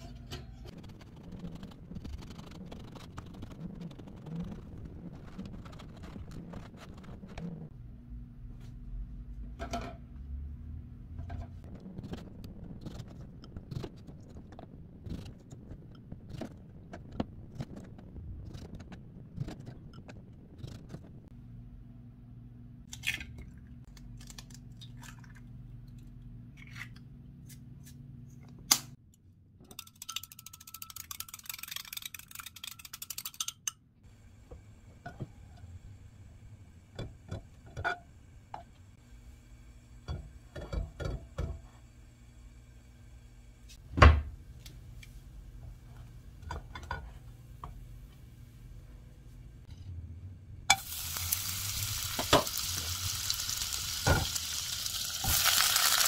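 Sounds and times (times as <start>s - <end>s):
egg cracking: 29.7s - 33.7s, 50.8s - 56.0s.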